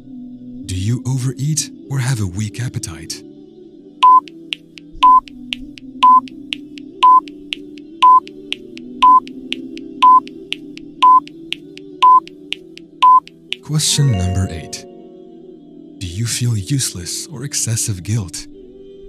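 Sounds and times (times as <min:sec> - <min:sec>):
soft music bed: 0:00.0 - 0:19.0
short high timer beeps: 0:04.0 - 0:04.3, 0:05.0 - 0:05.3, 0:06.0 - 0:06.2, 0:07.0 - 0:07.3, 0:08.0 - 0:08.3, 0:09.0 - 0:09.3, 0:10.0 - 0:10.3, 0:11.0 - 0:11.3, 0:12.0 - 0:12.3, 0:13.0 - 0:13.3.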